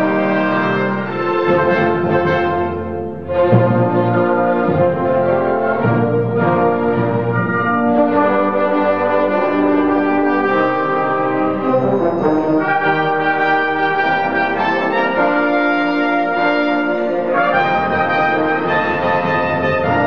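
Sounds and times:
orchestral brass music: 0.0s - 20.0s.

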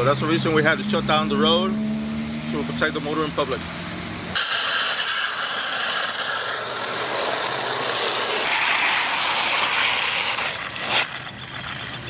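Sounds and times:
shovels scraping wet asphalt: 4.4s - 12.0s.

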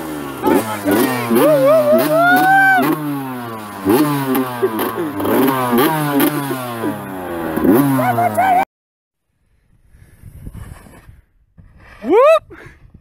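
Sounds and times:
dirt bike engine revving: 0.0s - 8.6s.

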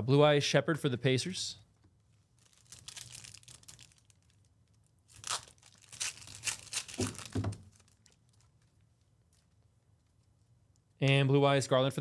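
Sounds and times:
foil wrapper tearing and crinkling: 2.4s - 4.5s, 5.1s - 8.6s
dull bumps of handled pack: 6.6s - 8.0s.

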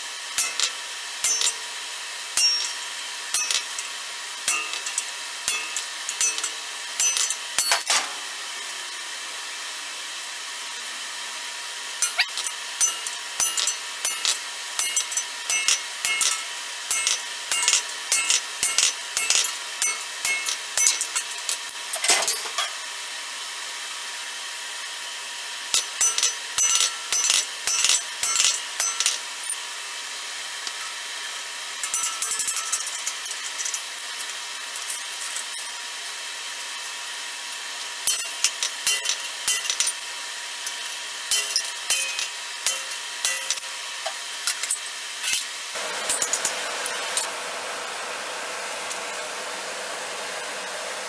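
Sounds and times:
hand tool clinking on sheet steel: 0.4s - 1.6s, 2.4s - 3.8s, 4.5s - 8.1s, 12.0s - 22.7s, 25.8s - 29.2s, 38.1s - 40.0s, 41.3s - 43.8s
drill grinding through sheet steel: 11.6s - 21.9s.

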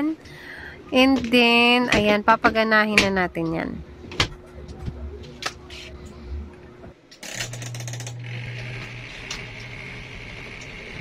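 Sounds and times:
spin-dryer motor humming: 0.8s - 11.0s
spin basket whirring: 7.2s - 11.0s.

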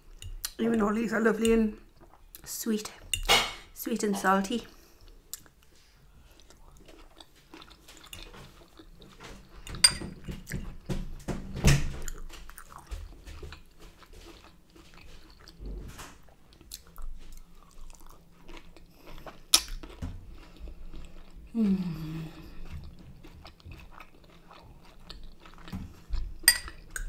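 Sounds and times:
person chewing and crunching food: 4.7s - 11.0s, 12.0s - 27.0s.

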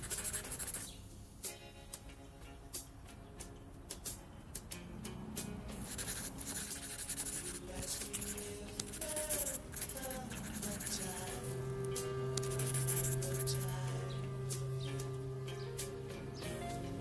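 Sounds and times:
pen scratching on paper: 0.0s - 0.9s, 5.8s - 11.6s, 12.4s - 13.9s
soft background music: 0.0s - 17.0s.

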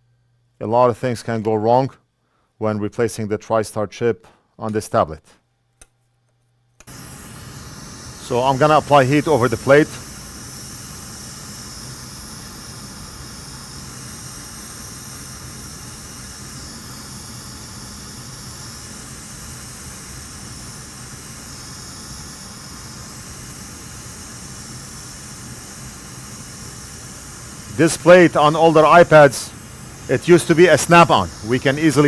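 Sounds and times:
hot air blower hissing: 6.8s - 32.0s.

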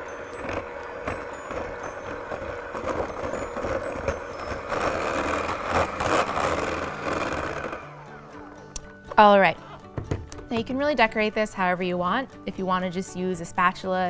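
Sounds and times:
electric hand mixer running: 0.0s - 10.0s.

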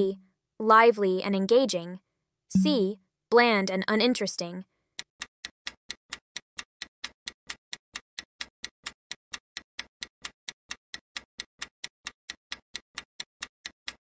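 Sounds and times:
clock ticking: 2.6s - 2.9s.

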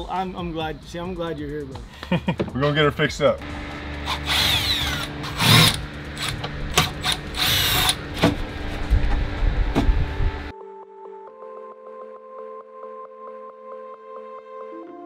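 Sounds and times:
soft music: 0.0s - 15.0s
power tool whirring: 3.4s - 10.5s
steady low hum: 3.4s - 10.5s
sharp clicks and knocks: 5.0s - 10.0s.

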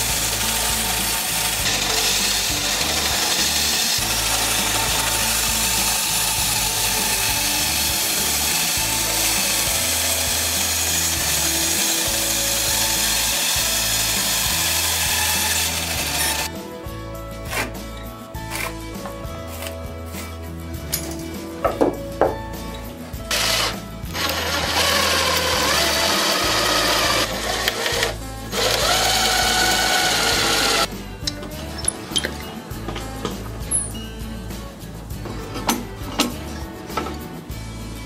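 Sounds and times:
band saw cutting wood: 0.0s - 16.6s, 23.3s - 30.9s
background music with bass line: 0.0s - 38.0s
wood being handled knocks: 21.6s - 22.4s.

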